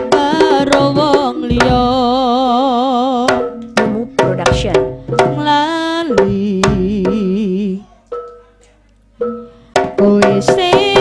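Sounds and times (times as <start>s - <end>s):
wavering melody line: 3.1s - 8.6s.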